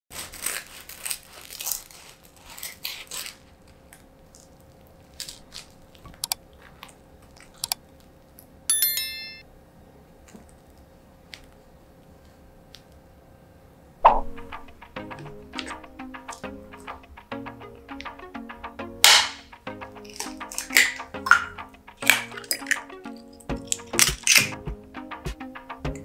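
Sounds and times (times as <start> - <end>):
knife crunching through toast crust: 0.1 - 4.1
sharp clicks: 6.2 - 6.4
bell chime: 8.7 - 9.4.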